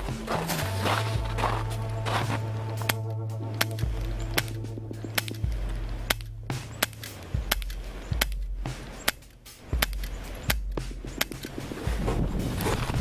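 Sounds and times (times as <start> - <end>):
low steady rumble: 0.0 - 13.0
airsoft pistol cracks: 2.8 - 11.6.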